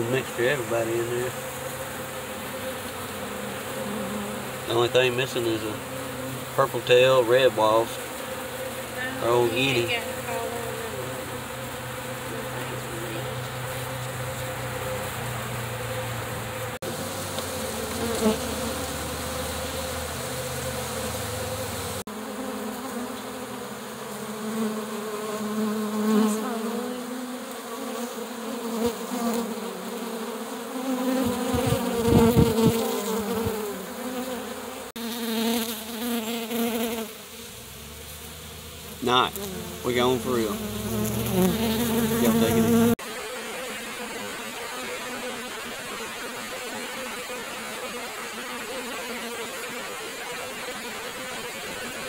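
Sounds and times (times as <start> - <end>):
bees buzzing: 0.0 - 52.0.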